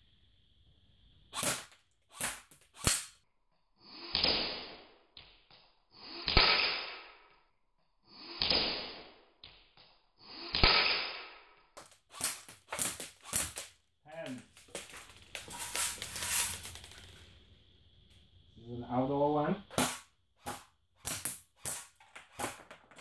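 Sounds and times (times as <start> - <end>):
airsoft gun shots: 1.3 - 3.2, 6.3 - 7.1, 10.5 - 13.7, 19.7 - 22.6.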